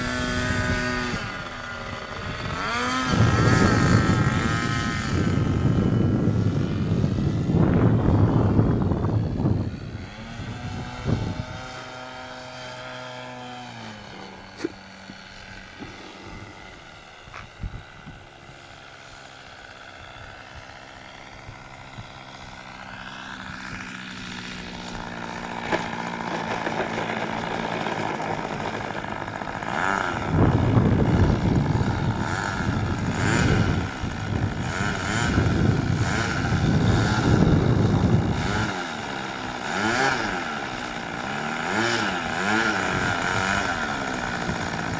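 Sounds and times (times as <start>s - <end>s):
model airplane engine: 0.0s - 44.9s
plane rolling on runway: 13.9s - 44.9s.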